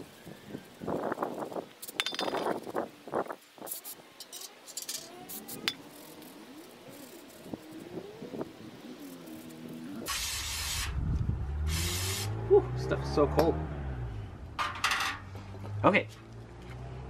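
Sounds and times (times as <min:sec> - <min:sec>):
spray can hissing: 0:08.9 - 0:11.0, 0:11.6 - 0:12.4.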